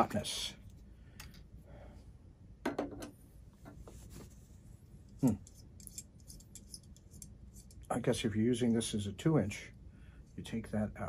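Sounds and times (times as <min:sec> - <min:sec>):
eyepiece handling clicks and rubs: 0:03.5 - 0:07.9.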